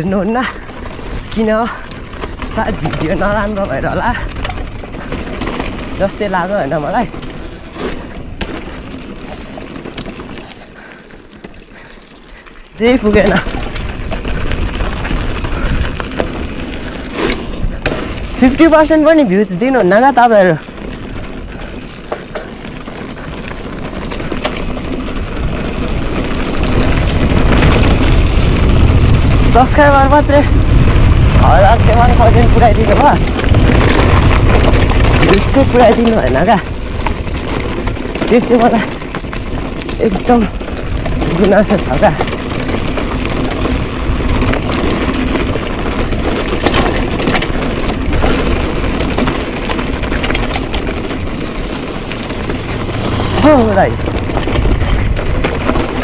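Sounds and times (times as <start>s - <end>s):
bike rattling clicks: 0.0s - 56.0s
tyres on dirt and stones: 0.0s - 56.0s
wind rushing over microphone: 0.0s - 56.0s
low rumble: 50.8s - 56.0s.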